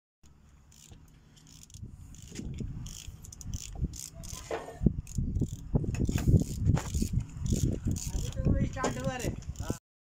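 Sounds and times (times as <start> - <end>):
ratchet wrenches clicking: 0.7 - 9.8.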